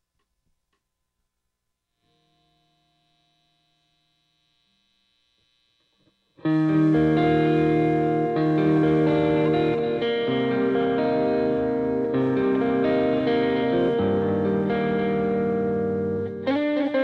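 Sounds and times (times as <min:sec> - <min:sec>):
electric guitar note ringing: 0:06.0 - 0:17.0.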